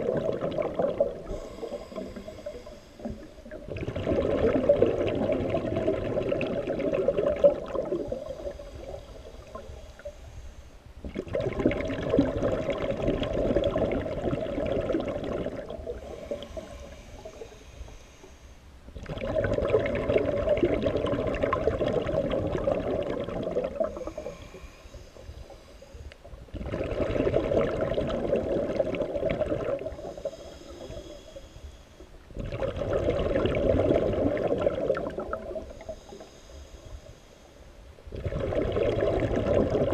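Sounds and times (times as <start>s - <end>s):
exhaled bubbles underwater: 0.0s - 10.2s, 11.0s - 17.7s, 18.9s - 31.4s, 32.3s - 36.4s, 38.0s - 39.9s
regulator inhalation hiss: 1.2s - 3.6s, 8.1s - 10.9s, 16.0s - 18.8s, 23.8s - 26.3s, 29.9s - 32.3s, 35.6s - 37.9s.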